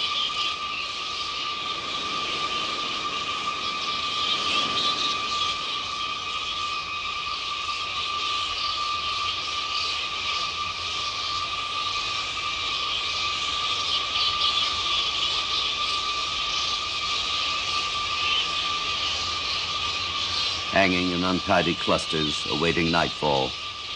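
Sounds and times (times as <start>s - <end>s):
fruit bats chattering: 16.5s - 23.9s.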